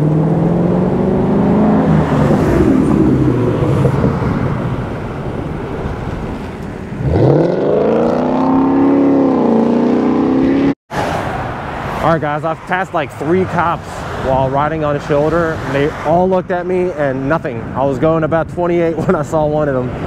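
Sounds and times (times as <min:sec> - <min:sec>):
vehicle accelerating: 0:00.0 - 0:12.4.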